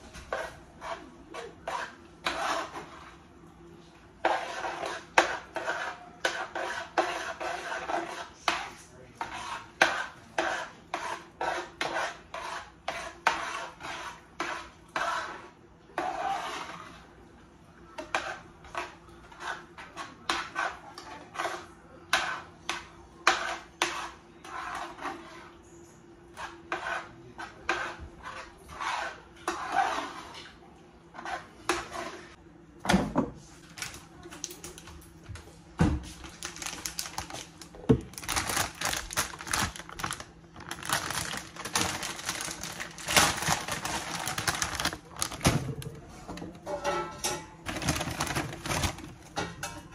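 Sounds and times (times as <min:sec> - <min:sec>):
spatula scraping a pan: 0:00.1 - 0:03.3, 0:04.2 - 0:17.2, 0:17.9 - 0:25.6, 0:26.3 - 0:32.4.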